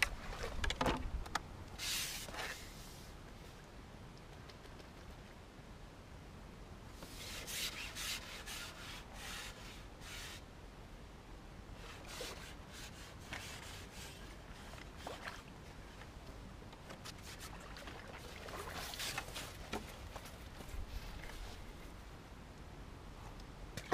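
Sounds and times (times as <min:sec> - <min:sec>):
fishing pole rubbing and scraping: 0:01.8 - 0:03.1, 0:07.0 - 0:10.4, 0:11.8 - 0:15.4, 0:18.8 - 0:21.9.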